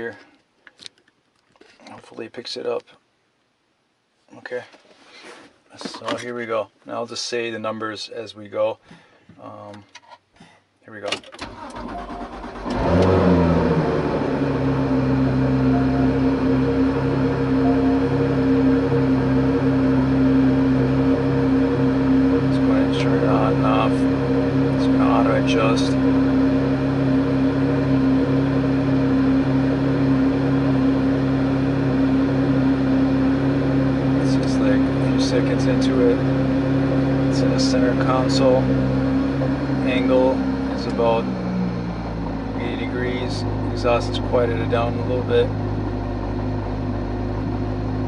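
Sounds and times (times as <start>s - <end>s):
car engine cranking and starting: 11.1s - 48.0s
loud car engine idling: 12.0s - 48.0s
low exhaust drone: 12.0s - 48.0s.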